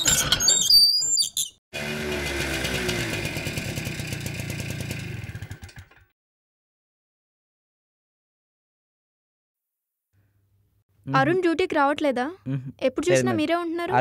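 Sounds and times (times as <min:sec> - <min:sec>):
scooter engine idling: 0:01.8 - 0:06.0.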